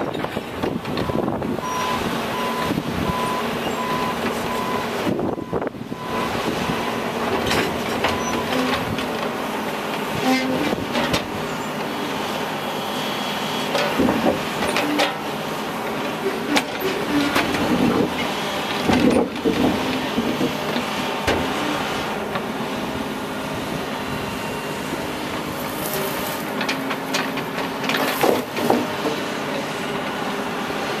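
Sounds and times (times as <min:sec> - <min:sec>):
diesel excavator engine running: 0:00.0 - 0:31.0
clanks and knocks of railroad ties: 0:07.2 - 0:12.0, 0:13.6 - 0:22.6, 0:25.3 - 0:30.2.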